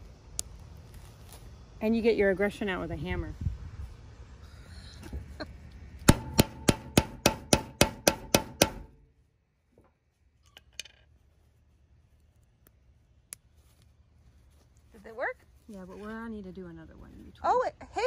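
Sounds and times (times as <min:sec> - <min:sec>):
hammer striking metal tool: 0:06.1 - 0:09.0.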